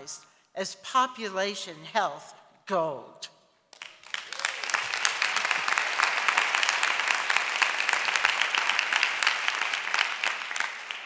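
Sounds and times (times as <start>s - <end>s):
audience applause: 3.8s - 11.0s.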